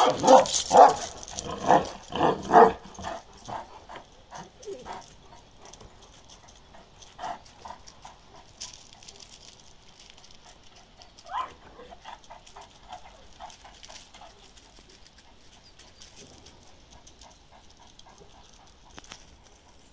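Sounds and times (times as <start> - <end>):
dog whimpering: 4.4 - 5.0
dog whining: 11.2 - 12.0.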